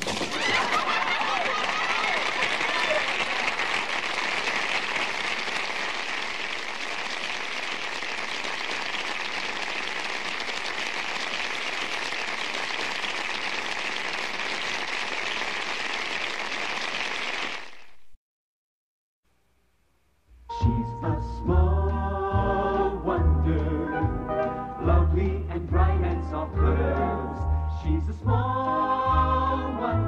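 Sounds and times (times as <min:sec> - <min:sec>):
audience applause: 0:00.0 - 0:18.0.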